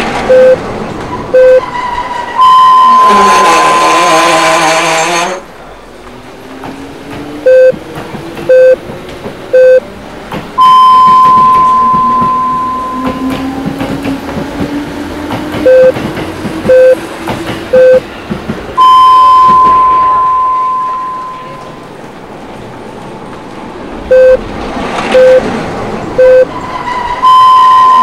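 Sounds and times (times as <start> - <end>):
train rumble: 0.0 - 28.0
time signal beeps: 0.3 - 0.6, 1.4 - 1.6, 2.4 - 3.2, 7.5 - 7.8, 8.5 - 8.8, 9.5 - 9.8, 10.6 - 13.3, 15.7 - 16.0, 16.7 - 17.0, 17.7 - 18.0, 18.8 - 21.8, 24.1 - 24.4, 25.1 - 25.4, 26.2 - 26.5, 27.2 - 28.0.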